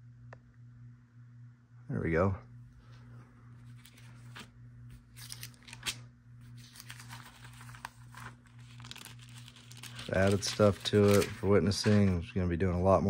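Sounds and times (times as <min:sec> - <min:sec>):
faint low hum: 0:00.0 - 0:13.0
paper pages rustling: 0:02.9 - 0:12.2.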